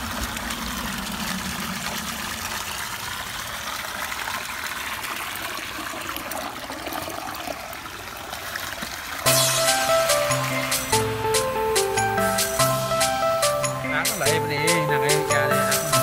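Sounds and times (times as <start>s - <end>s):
water pouring from a pipe: 0.0s - 11.3s
water splashing into a pond: 0.0s - 12.0s.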